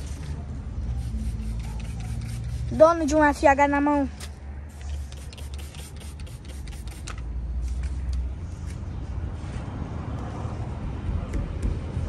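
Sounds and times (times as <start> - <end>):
hand rubbing vinyl decals: 0.0 - 3.0, 4.7 - 8.0
spray bottle squirting: 1.0 - 2.8, 4.2 - 7.3.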